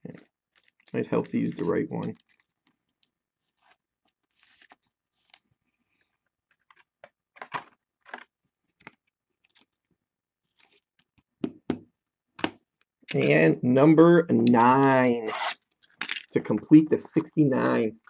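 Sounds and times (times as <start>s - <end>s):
plastic card sleeve rustling: 0.5s - 9.8s, 10.4s - 11.2s.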